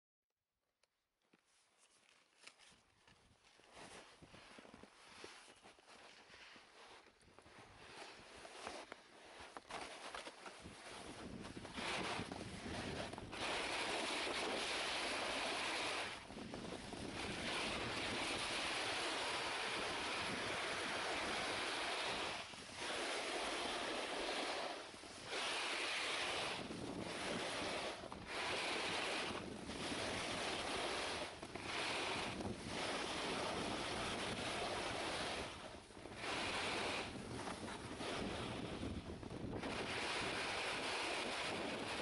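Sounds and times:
wind rushing over microphone: 10.2 - 42.0.

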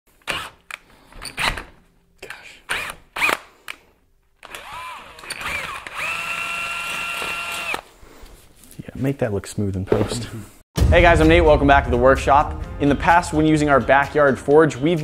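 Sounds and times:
power drill drilling steel: 4.4 - 7.8.

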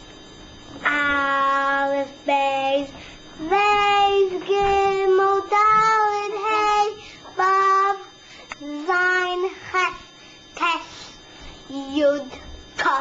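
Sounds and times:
boy singing in high voice: 0.9 - 10.0.

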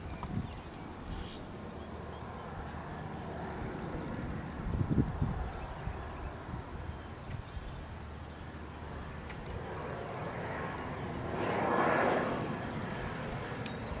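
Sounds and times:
passing vehicle rushing: 10.2 - 13.3.

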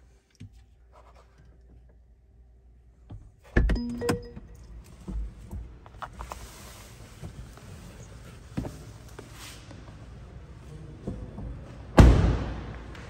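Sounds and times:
electronic warning chime: 3.8 - 4.6.

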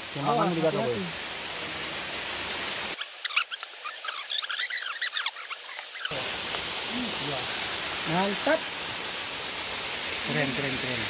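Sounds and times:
waterfall rushing: 0.0 - 11.0
high squeaky chirps: 3.0 - 6.1.

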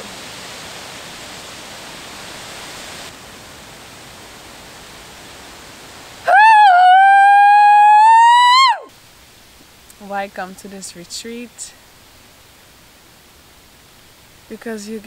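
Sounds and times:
background hiss: 0.0 - 15.0
woman crying out with joy: 6.3 - 8.9.

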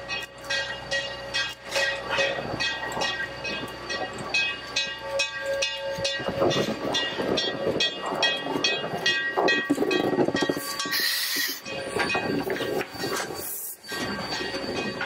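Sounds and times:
steam locomotive exhaust chuffing: 0.0 - 15.0.

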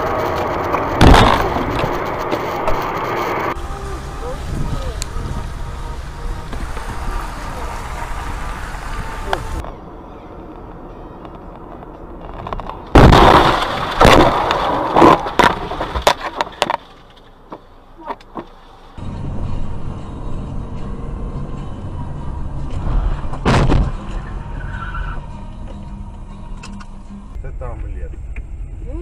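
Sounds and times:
car crash: 0.0 - 3.6, 11.3 - 17.3, 22.7 - 25.2
engine and road noise: 0.0 - 29.0
short loud bang: 23.4 - 24.0.

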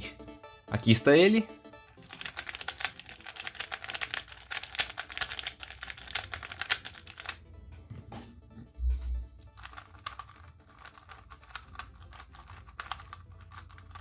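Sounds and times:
plastic puzzle cube clicking: 2.0 - 7.4, 9.5 - 14.0.

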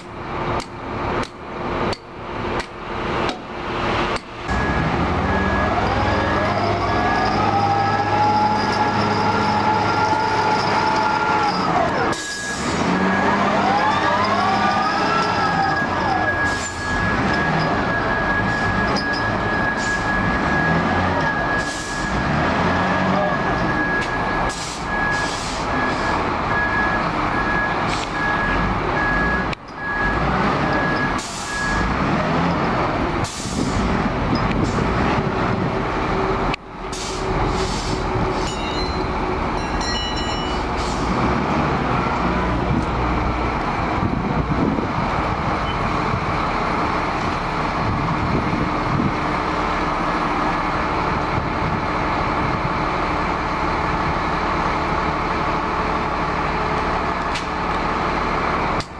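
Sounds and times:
diesel engine running: 0.0 - 58.9
beeping alarm: 4.5 - 22.3, 23.2 - 31.9.

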